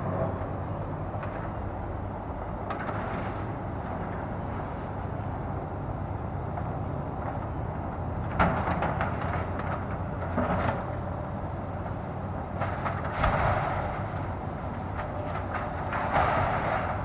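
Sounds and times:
excavator diesel engine running: 0.0 - 17.0
structure breaking and debris falling: 12.5 - 17.0.

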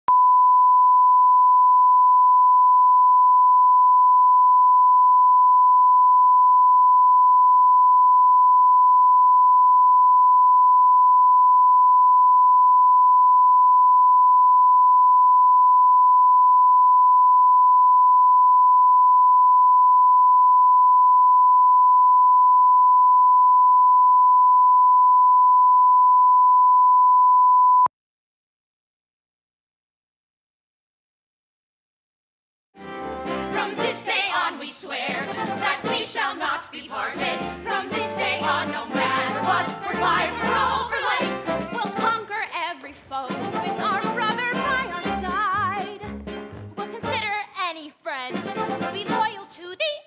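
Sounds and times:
steady sine-wave tone: 0.1 - 27.9.

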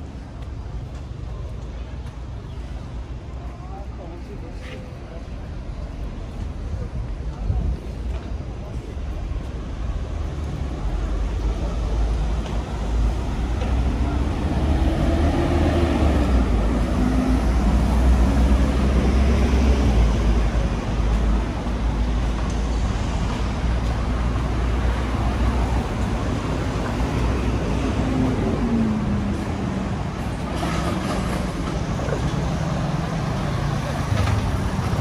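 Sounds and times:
street traffic rumble: 0.0 - 35.0.

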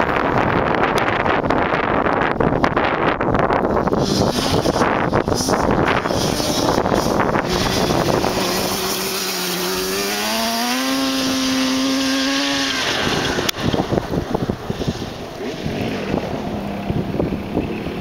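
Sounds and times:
wind buffeting microphone: 0.0 - 18.0
two-stroke engine revving: 3.8 - 18.0.

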